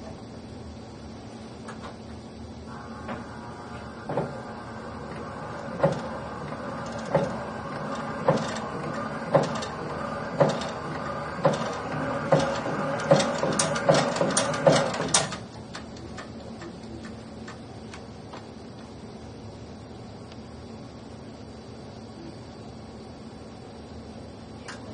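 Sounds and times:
rhythmic knocks of shake table: 5.7 - 15.4.

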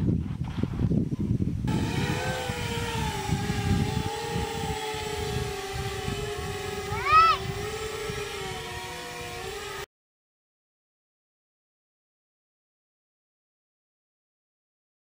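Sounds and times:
model airplane motor whining: 1.7 - 9.9.

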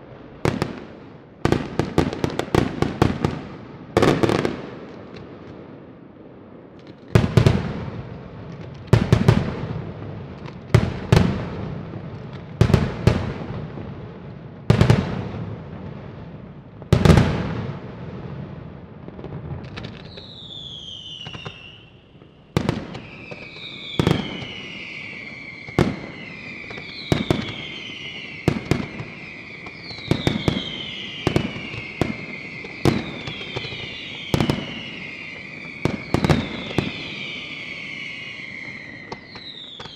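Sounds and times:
firework crackle and echo: 0.0 - 39.9
whistling fireworks: 0.0 - 39.9.

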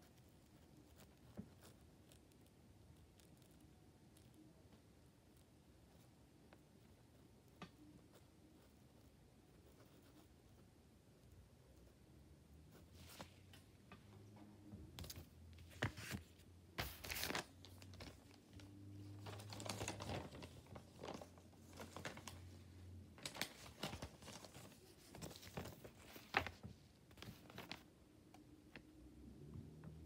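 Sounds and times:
paper rustling and crinkling: 15.0 - 27.9.

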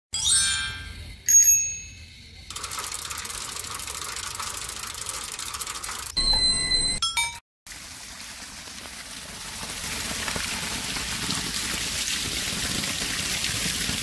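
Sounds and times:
bell-like chime tones: 0.2 - 2.2, 6.2 - 7.4
bright ding: 6.2 - 7.4.

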